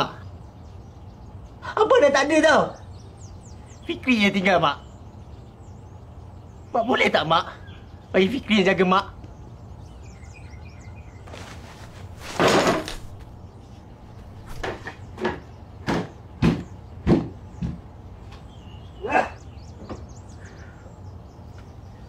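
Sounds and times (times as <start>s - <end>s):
faint bird chirps: 0.0s - 22.0s
scuffing rustle: 11.2s - 13.4s.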